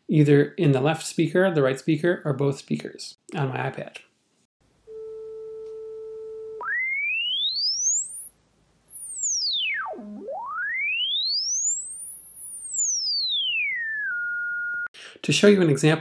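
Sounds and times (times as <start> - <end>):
sine tone sweeping: 4.9 - 14.9.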